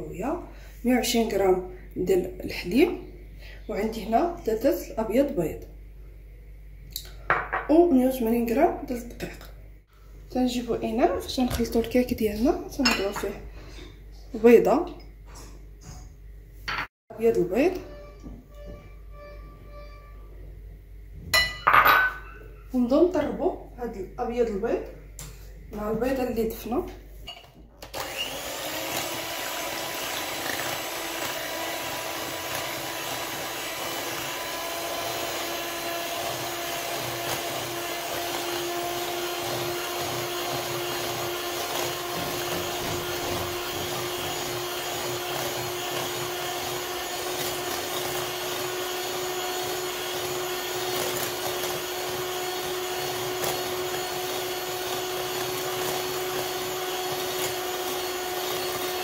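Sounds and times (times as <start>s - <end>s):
electric hand mixer whining: 27.8s - 59.0s.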